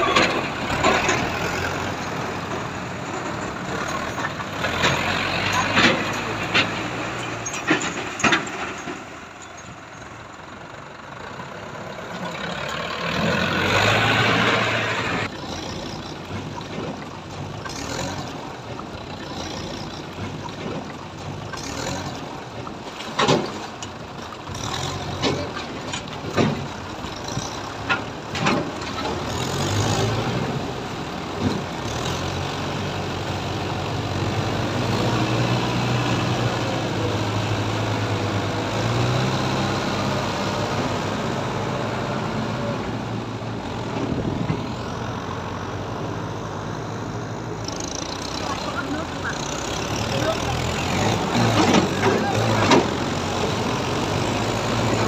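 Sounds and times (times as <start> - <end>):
tractor diesel engines running: 0.0 - 55.0.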